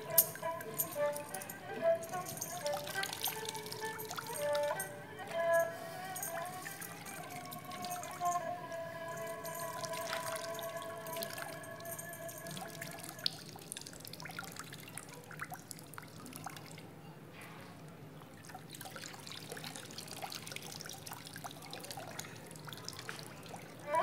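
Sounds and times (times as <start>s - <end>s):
faint trickling water: 0.0s - 24.0s
water drips and splashes: 2.5s - 4.9s, 9.4s - 11.6s, 12.4s - 17.0s, 18.2s - 23.8s.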